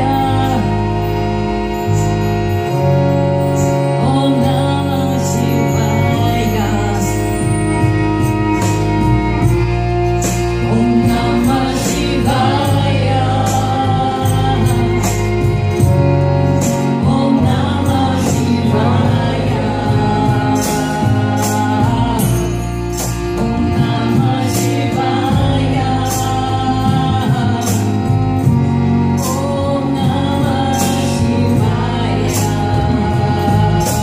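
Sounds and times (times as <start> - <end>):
held low drone tones: 0.0 - 34.0
percussion: 0.0 - 34.0
voices singing a chant: 10.7 - 15.2, 17.1 - 22.7, 23.4 - 28.4, 29.0 - 34.0.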